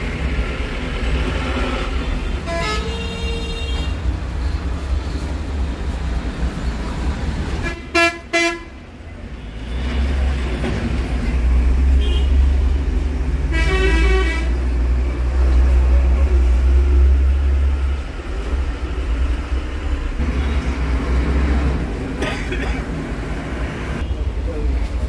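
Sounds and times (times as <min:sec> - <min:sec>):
large vehicle engine rumbling: 0:00.0 - 0:25.0
vehicle horn: 0:02.4 - 0:04.0, 0:07.6 - 0:08.8, 0:12.0 - 0:12.5, 0:13.5 - 0:14.6.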